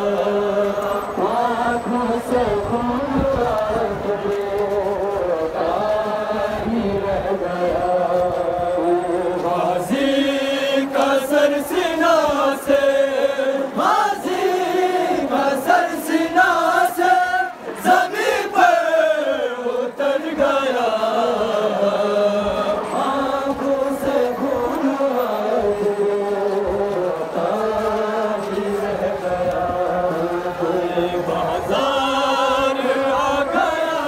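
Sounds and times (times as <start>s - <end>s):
voices chanting a lament: 0.0s - 34.0s.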